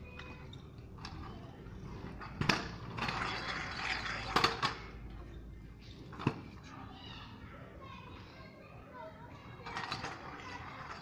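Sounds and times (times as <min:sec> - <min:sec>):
scooter wheels rolling on tarmac: 0:00.0 - 0:05.1, 0:09.6 - 0:11.0.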